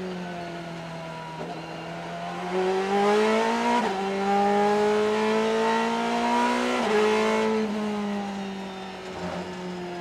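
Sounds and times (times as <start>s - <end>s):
race car engine accelerating: 2.4s - 8.2s.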